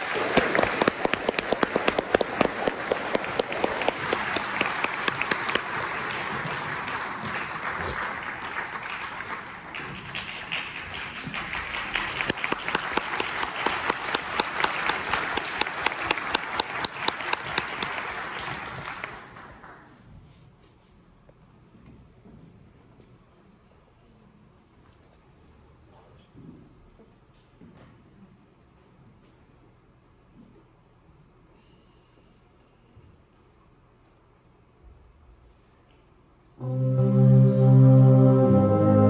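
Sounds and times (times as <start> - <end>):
sharp close claps: 0.0 - 19.6
audience applauding: 0.0 - 20.0.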